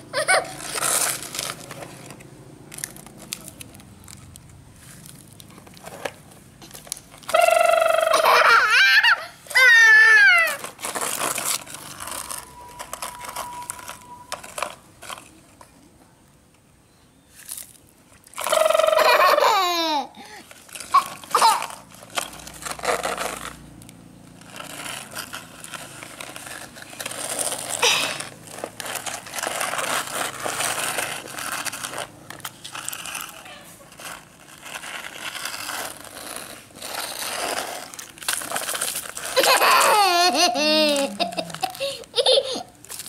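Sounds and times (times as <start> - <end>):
toy excavators scraping sand: 0.2 - 2.2, 4.8 - 15.2, 18.4 - 43.0
toddler crying: 7.4 - 10.6, 39.4 - 42.7.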